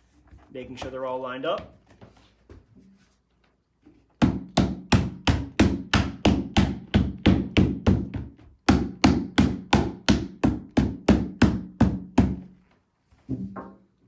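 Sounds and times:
rubber mallet striking plastic panel: 4.2s - 12.4s.

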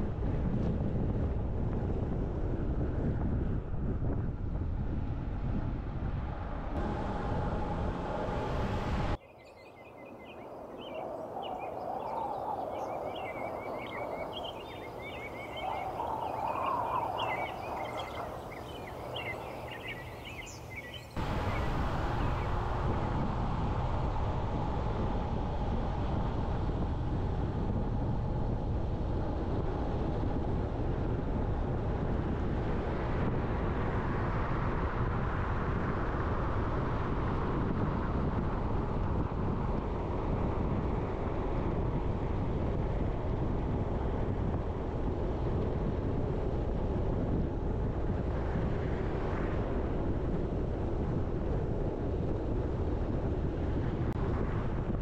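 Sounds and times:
car road and wind noise: 0.0s - 55.0s
birds chirping: 9.2s - 22.7s.

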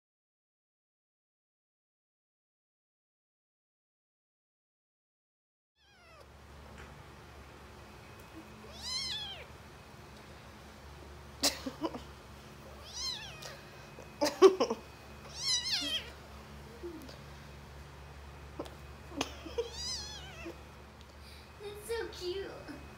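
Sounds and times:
kitten meowing: 5.8s - 6.3s, 8.4s - 9.5s, 12.7s - 13.6s, 15.3s - 16.2s, 19.6s - 20.6s.

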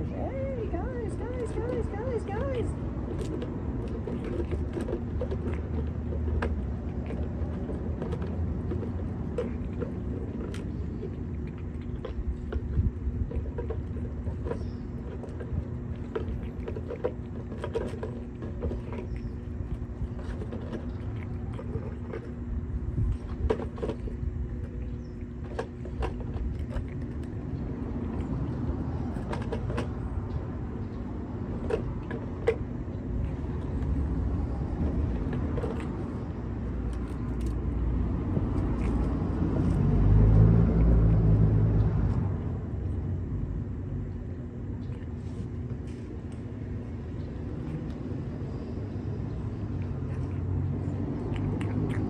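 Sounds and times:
low urban rumble: 0.0s - 52.0s
vehicle passing: 26.6s - 43.7s, 46.6s - 52.0s.

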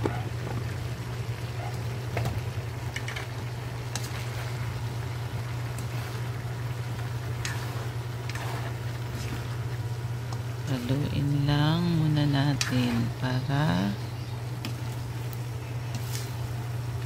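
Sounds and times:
steady low hum: 0.0s - 17.0s
food sizzling in a wok: 2.6s - 10.8s, 12.5s - 17.0s.

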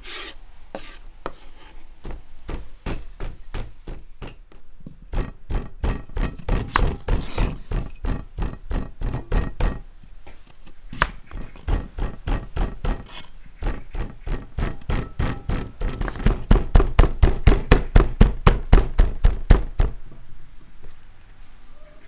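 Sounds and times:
knife slicing raw potato: 10.4s - 11.6s.

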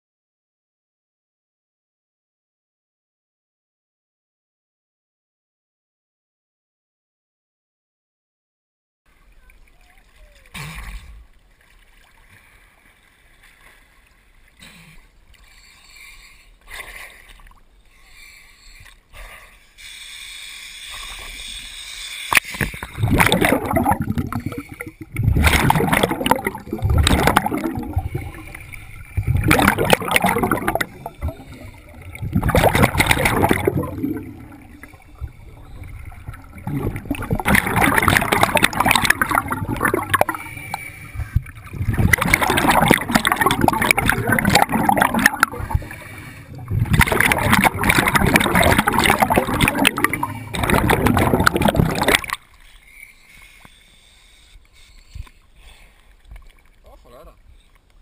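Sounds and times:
regulator bubbles gurgling underwater: 22.3s - 52.5s.

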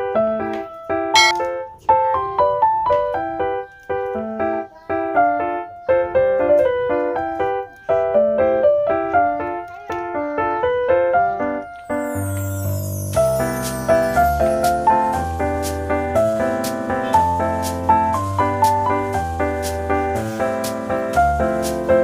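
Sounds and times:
bright keyboard melody: 1.2s - 1.4s.

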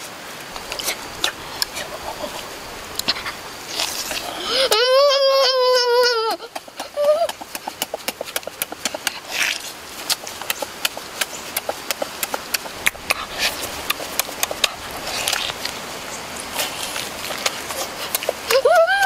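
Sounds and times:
mouth chewing and smacking: 0.5s - 4.6s, 6.4s - 19.0s
breathy rushes: 0.8s - 5.1s.

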